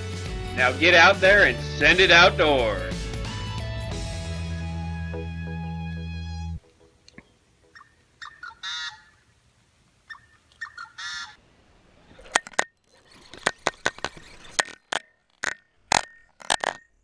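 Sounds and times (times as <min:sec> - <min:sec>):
harsh goose-like calls: 0:07.7 - 0:09.2, 0:10.1 - 0:11.4
waterbirds calling: 0:07.7 - 0:09.3, 0:10.0 - 0:11.4
sharp clicks and knocks: 0:12.2 - 0:17.0.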